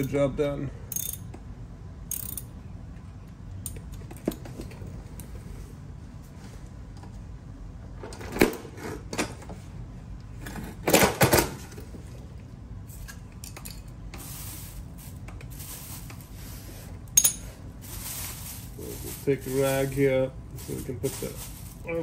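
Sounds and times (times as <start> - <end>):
metal tool clinking: 0.9 - 1.3, 17.2 - 17.6.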